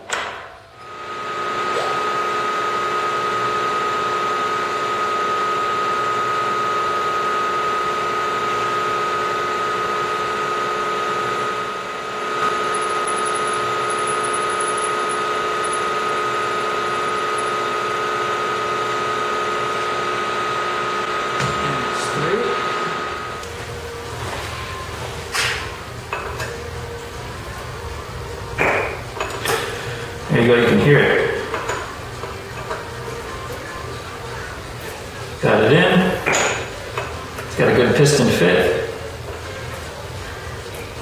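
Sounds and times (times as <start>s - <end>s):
milling machine spindle whine: 0.8s - 41.0s.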